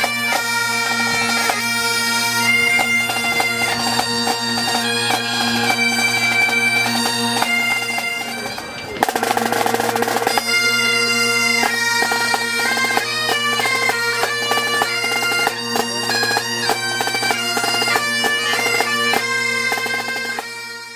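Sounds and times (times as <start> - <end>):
bagpipes playing a tune: 0.0 - 20.9
snare drum: 9.0 - 10.6.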